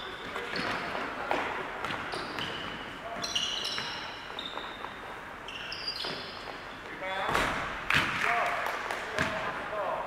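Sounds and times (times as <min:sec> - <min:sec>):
shoes squeaking on court: 0:00.0 - 0:07.5.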